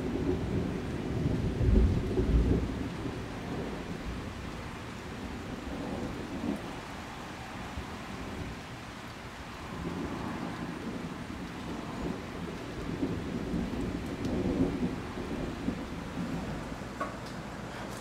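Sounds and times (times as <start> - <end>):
low rumble of thunder: 0.0 - 17.7
rain falling on a river: 0.0 - 18.0.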